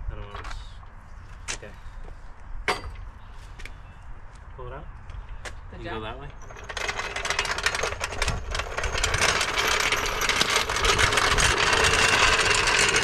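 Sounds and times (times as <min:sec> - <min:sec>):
engine running steadily: 0:06.4 - 0:13.0.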